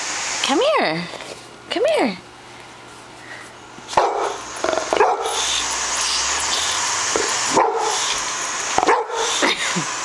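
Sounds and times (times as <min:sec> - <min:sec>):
air hissing from ball: 0:03.8 - 0:10.0
dog barking: 0:03.9 - 0:05.5, 0:07.5 - 0:08.1, 0:08.8 - 0:09.4.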